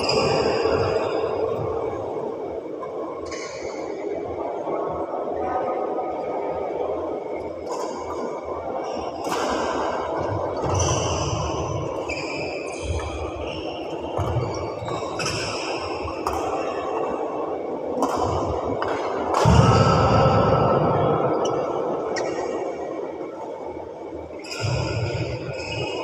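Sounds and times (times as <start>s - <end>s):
shoe squeaks on court floor: 24.4s - 26.0s.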